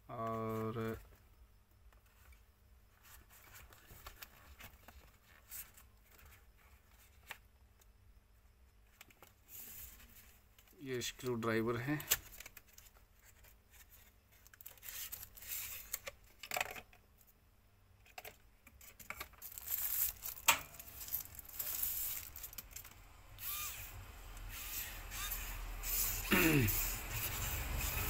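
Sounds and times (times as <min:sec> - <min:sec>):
packaging rustling and tearing: 0:12.0 - 0:16.2, 0:18.2 - 0:23.6.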